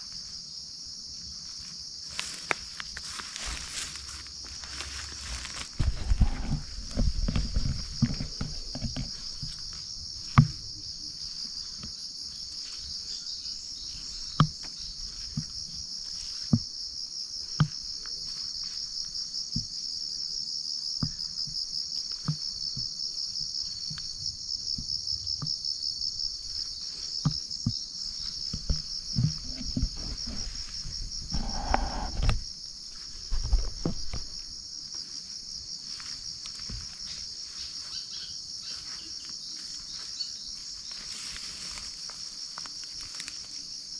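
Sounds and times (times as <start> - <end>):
insect chorus buzzing: 0.0 - 43.9
rustling: 2.1 - 10.4.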